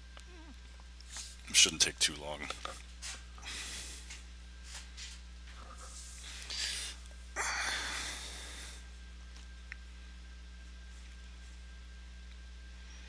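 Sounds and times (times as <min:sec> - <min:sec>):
low electrical hum: 0:00.0 - 0:13.0
man breathing out: 0:06.4 - 0:08.8.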